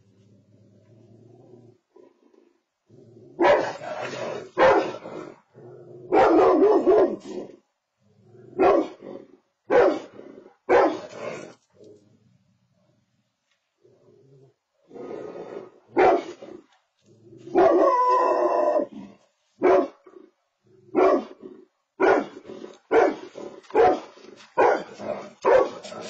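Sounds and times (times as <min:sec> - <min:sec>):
dog barking loudly: 0:03.4 - 0:05.3, 0:06.1 - 0:07.4, 0:08.6 - 0:09.0, 0:09.7 - 0:11.5, 0:15.9 - 0:16.4, 0:17.5 - 0:18.9, 0:19.6 - 0:20.0, 0:20.9 - 0:21.4, 0:22.0 - 0:26.0.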